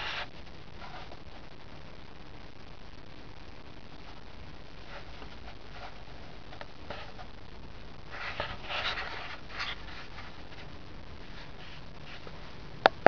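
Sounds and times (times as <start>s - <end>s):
steady low hiss: 0.0s - 13.0s.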